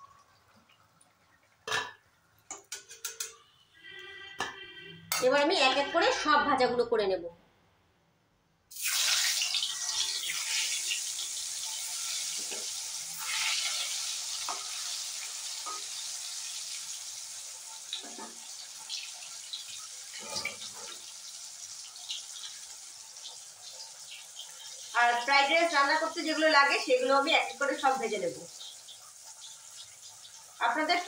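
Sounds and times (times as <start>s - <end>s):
vegetables sizzling in hot oil: 8.7s - 31.0s.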